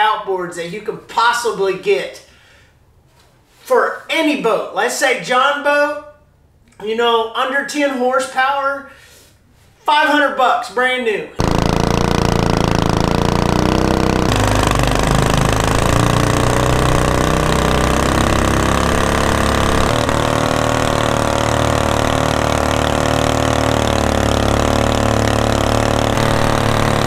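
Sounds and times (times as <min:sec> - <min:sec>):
boat motor running: 0:11.4 - 0:27.0.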